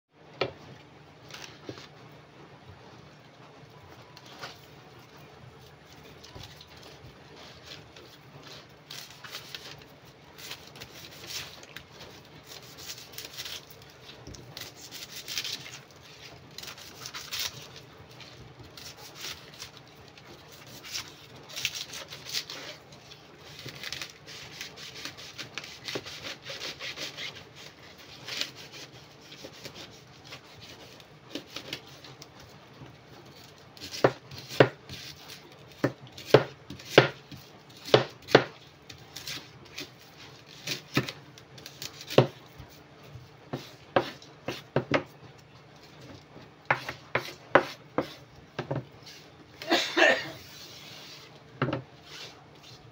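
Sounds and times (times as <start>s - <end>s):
knife scraping pineapple leaves: 4.2s - 32.5s, 33.2s - 45.2s, 45.8s - 51.4s, 52.0s - 52.9s
knife chopping on wooden board: 33.8s - 35.1s, 35.7s - 38.6s, 41.8s - 42.7s, 43.5s - 45.1s, 46.7s - 48.9s.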